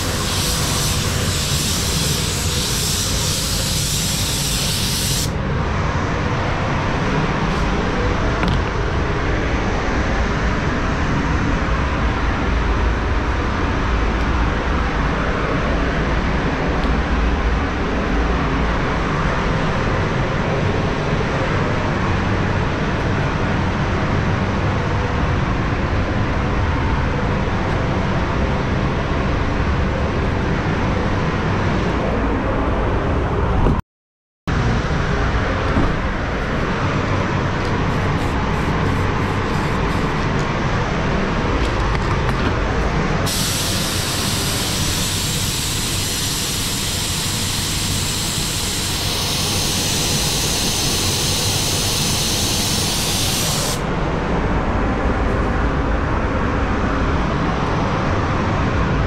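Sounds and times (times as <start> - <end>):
spray gun air hissing: 0.0 - 5.4, 37.7 - 40.2, 43.3 - 53.8
ventilation rumble: 0.0 - 33.8, 34.5 - 59.0.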